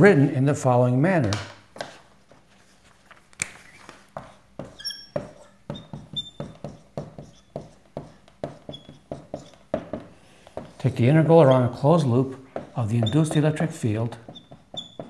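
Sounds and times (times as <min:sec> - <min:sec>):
marker squeaks: 0:03.4 - 0:09.8, 0:10.6 - 0:15.0
marker writing on whiteboard: 0:03.5 - 0:15.0.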